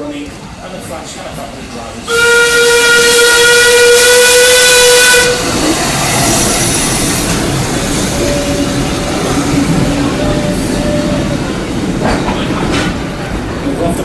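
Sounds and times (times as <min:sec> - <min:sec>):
train rumbling past: 0:00.0 - 0:14.0
steam locomotive whistle blast: 0:02.1 - 0:07.3.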